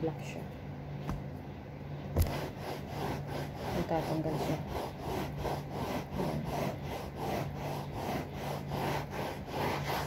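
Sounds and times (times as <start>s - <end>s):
rag scrubbing upholstery: 2.2s - 10.0s.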